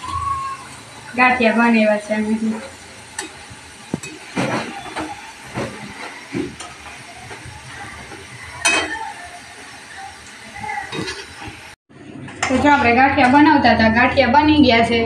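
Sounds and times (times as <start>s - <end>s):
snack sizzling in hot oil: 0.0s - 11.8s.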